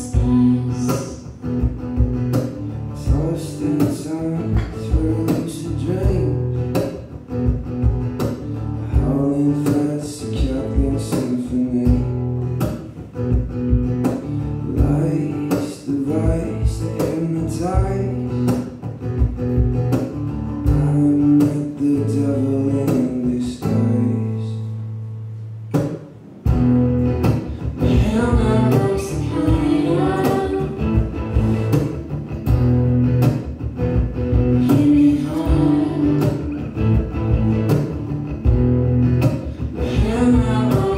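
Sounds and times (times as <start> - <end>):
person singing: 0.0 - 1.3, 27.8 - 31.1, 34.6 - 36.7, 39.8 - 40.9
acoustic guitar strummed and picked: 0.0 - 40.9
low bass line: 26.4 - 40.9.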